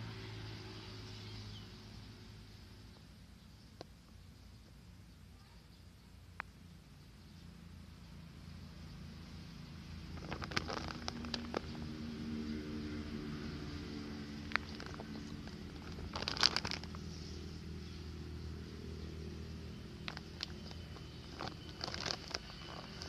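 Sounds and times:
plastic sack crinkling: 10.1 - 11.8, 14.4 - 17.2, 20.0 - 23.0.

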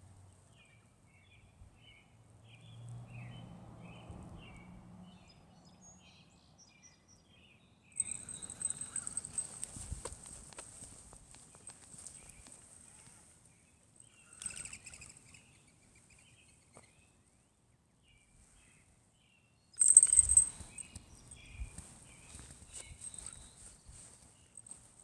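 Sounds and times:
bird chirps: 0.5 - 9.7, 14.0 - 17.2, 18.2 - 24.8
thin steady high tone: 8.0 - 9.8, 19.8 - 21.0
street ambience: 8.0 - 12.8.

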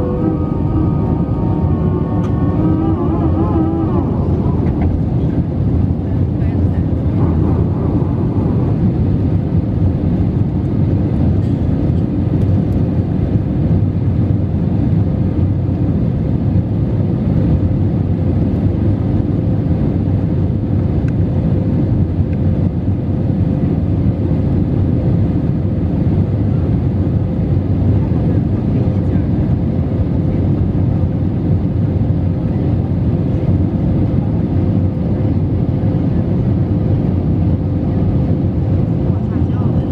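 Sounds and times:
faint steady hum: 0.0 - 15.9
aircraft cabin engine rumble: 0.0 - 39.9.

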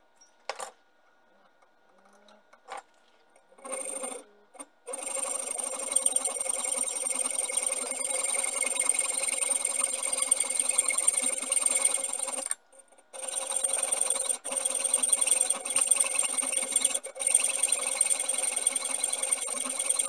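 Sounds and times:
hacksaw cutting metal: 13.2 - 20.0.

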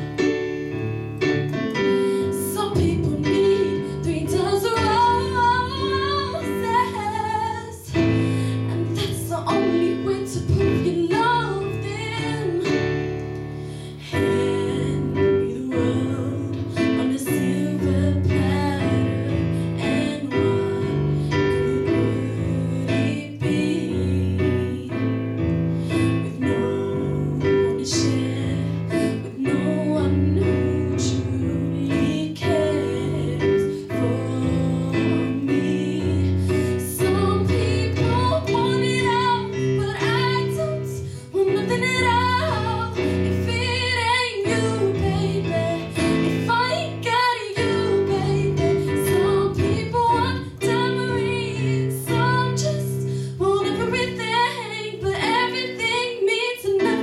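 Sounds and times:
digital piano chords: 0.0 - 57.0
woman singing a ballad: 1.6 - 57.0.

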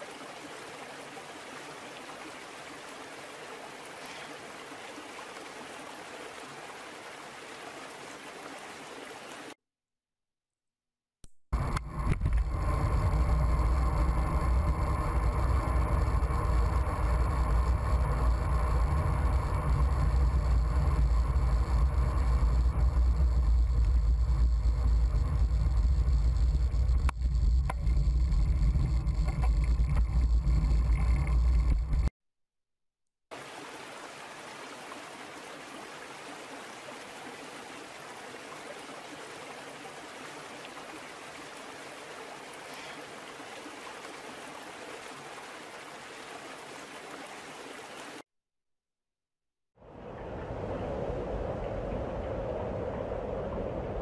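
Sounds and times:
rumbling with low hum: 11.5 - 32.1.

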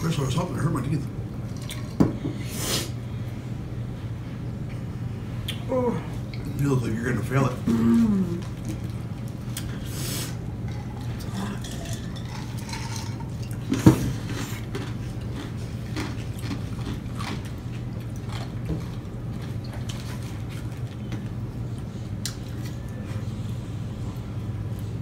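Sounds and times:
people chewing: 7.6 - 25.0.

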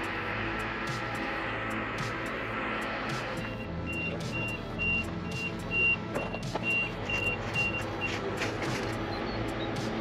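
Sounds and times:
music: 0.0 - 10.0
vehicle warning beeper: 3.4 - 8.2.

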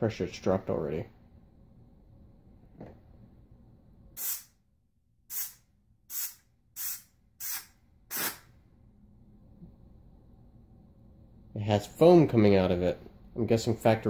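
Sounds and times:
steam hissing bursts: 4.2 - 4.5, 5.3 - 8.4.

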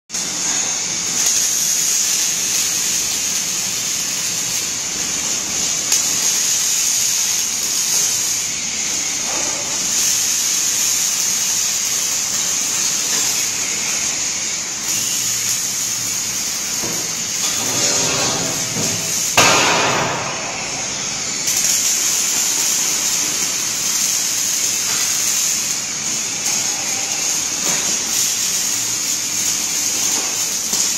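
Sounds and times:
welding arc hissing and crackling: 0.1 - 30.9
loud sudden noise: 17.6 - 21.2.

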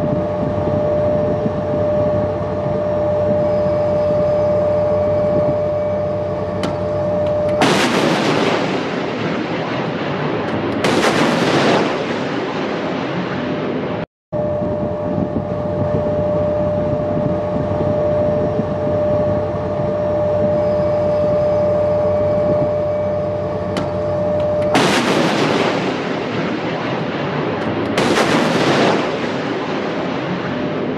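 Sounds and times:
held tone: 0.0 - 9.1, 14.4 - 25.3
rocket motor rushing blast: 5.1 - 14.0, 22.4 - 30.9.

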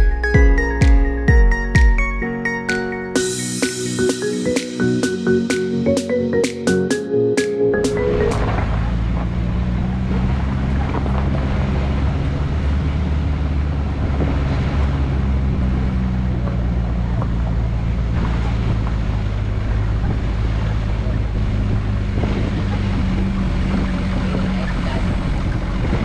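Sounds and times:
engine drone: 3.2 - 26.0
road and wind noise: 3.2 - 26.0.

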